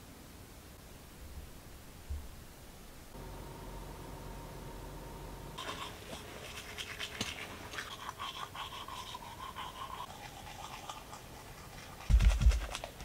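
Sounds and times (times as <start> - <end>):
teeth brushing: 5.6 - 13.0.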